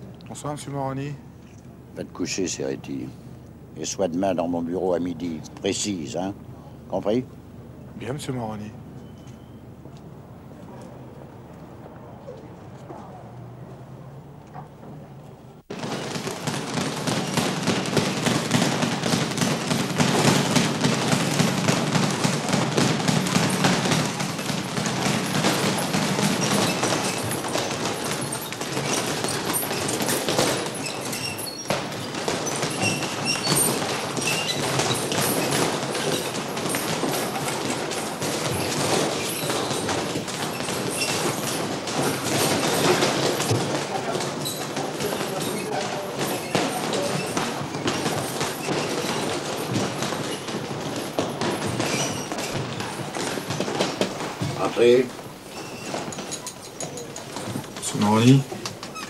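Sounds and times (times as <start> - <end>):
punches thumping punching bags: 15.7 - 56.4.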